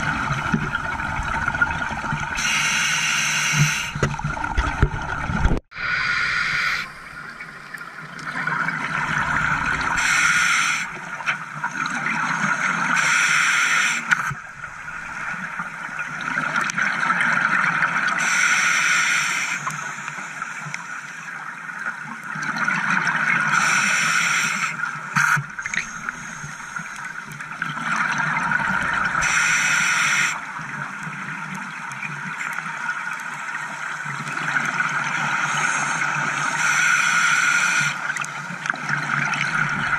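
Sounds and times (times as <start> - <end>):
exhaled bubbles underwater: 0.0 - 2.6, 3.5 - 10.2
watery hiss: 2.4 - 4.1, 5.8 - 7.4, 10.0 - 11.2, 12.4 - 15.3, 18.2 - 21.3, 23.5 - 27.2, 29.2 - 30.5, 35.2 - 38.1.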